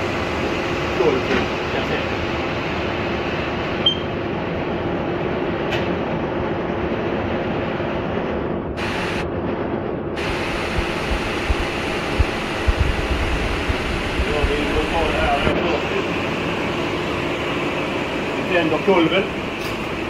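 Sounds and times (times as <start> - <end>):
film projector whirring: 10.2 - 20.0.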